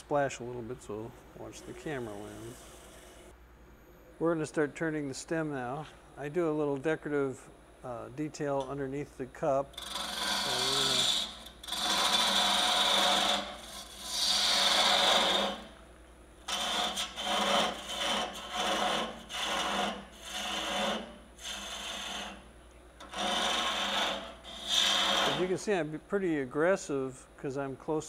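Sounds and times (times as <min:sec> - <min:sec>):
lathe tool scraping wood: 0:01.4 - 0:03.3, 0:09.7 - 0:15.8, 0:16.4 - 0:25.7.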